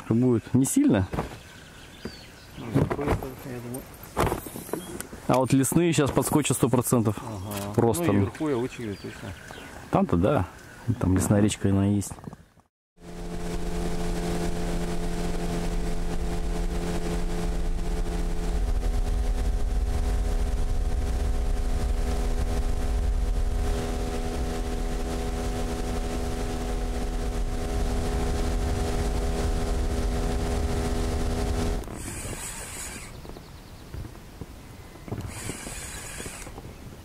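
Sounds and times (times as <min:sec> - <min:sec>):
outboard motor running: 0:13.0 - 0:33.4, 0:35.1 - 0:36.7.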